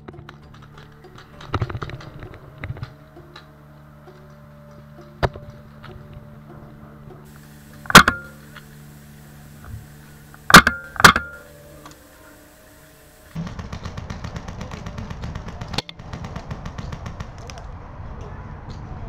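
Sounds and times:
rapid clatter of ticks: 0:00.0 - 0:03.5, 0:13.4 - 0:17.7
paintball marker shots: 0:07.4 - 0:08.7, 0:10.4 - 0:12.0, 0:13.4 - 0:17.7.

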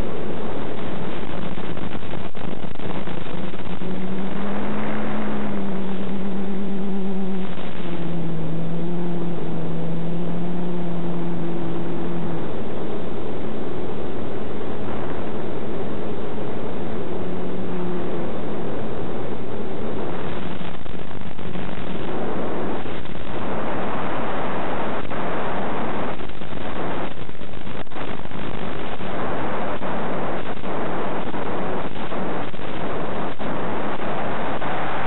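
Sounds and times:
drone propellers humming: 0:00.0 - 0:35.0
wind noise: 0:00.0 - 0:35.0.

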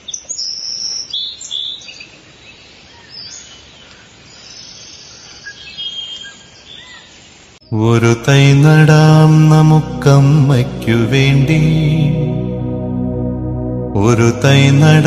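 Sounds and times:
birds chirping and singing: 0:03.0 - 0:07.2.

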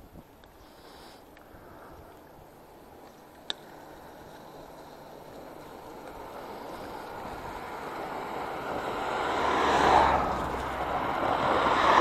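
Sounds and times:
car driving past: 0:06.1 - 0:12.0.

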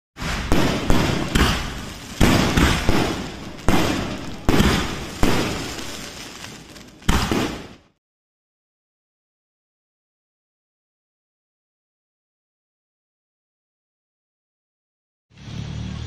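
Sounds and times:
firework bangs: 0:00.2 - 0:08.0.

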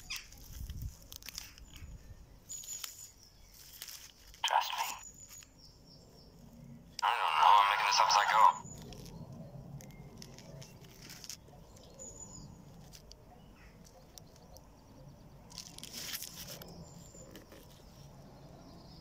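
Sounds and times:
leaves rustling: 0:00.0 - 0:05.6, 0:10.1 - 0:11.5, 0:15.5 - 0:18.1.

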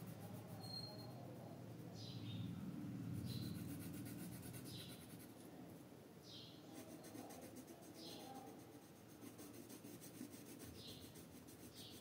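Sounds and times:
pencil scratching on paper: 0:03.2 - 0:05.5, 0:06.7 - 0:12.0.

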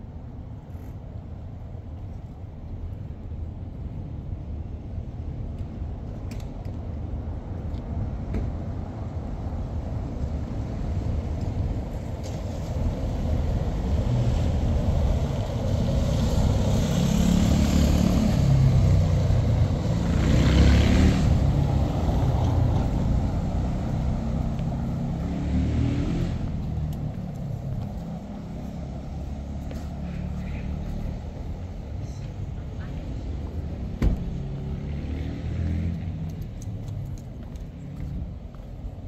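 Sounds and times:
low street rumble: 0:00.0 - 0:39.0
motor vehicle passing: 0:12.2 - 0:39.0.

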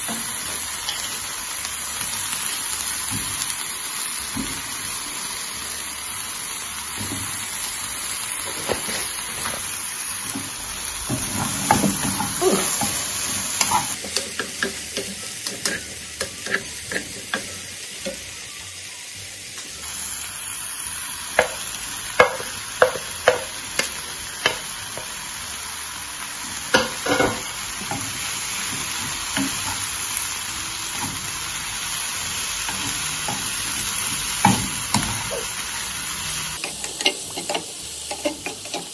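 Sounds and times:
vegetables sizzling in oil: 0:00.0 - 0:38.9
spatula knocking against pan: 0:22.2 - 0:25.1.

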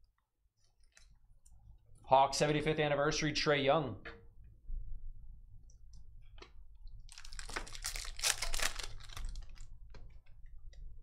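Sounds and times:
packaging crinkling and scraping: 0:07.1 - 0:09.7.

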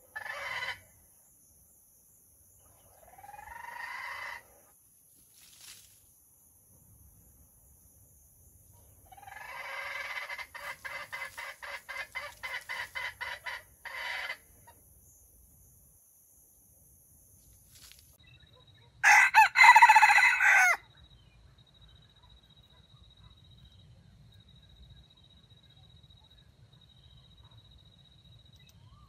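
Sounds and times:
chicken clucking: 0:09.1 - 0:14.4
rooster crowing: 0:19.0 - 0:20.8.

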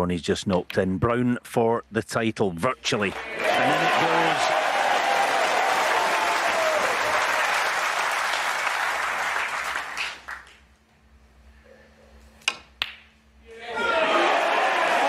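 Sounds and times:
crowd applauding: 0:03.0 - 0:10.6, 0:13.9 - 0:15.0.

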